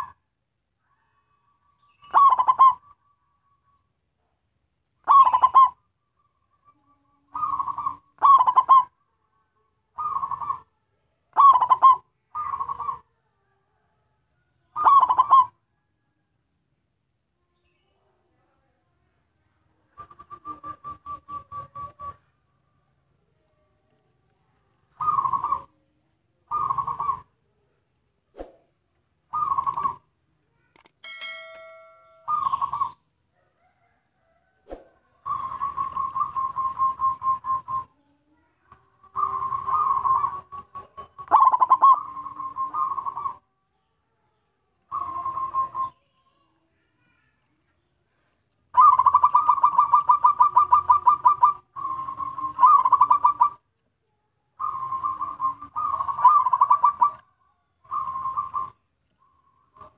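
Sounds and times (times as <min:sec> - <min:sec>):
dove cooing: 0:00.0 - 0:00.2, 0:01.2 - 0:03.6, 0:05.0 - 0:05.9, 0:06.7 - 0:09.0, 0:09.9 - 0:10.7, 0:11.3 - 0:13.1, 0:14.7 - 0:15.6, 0:24.8 - 0:25.8, 0:26.5 - 0:27.4, 0:29.3 - 0:30.1, 0:32.2 - 0:37.9, 0:39.0 - 0:43.4, 0:44.9 - 0:46.0, 0:48.7 - 0:53.7, 0:54.6 - 0:57.2, 0:57.8 - 0:59.9.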